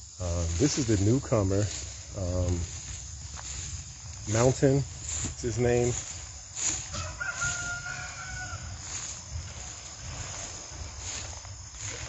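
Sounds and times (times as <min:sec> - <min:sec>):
rooster crowing: 0:06.6 - 0:09.3.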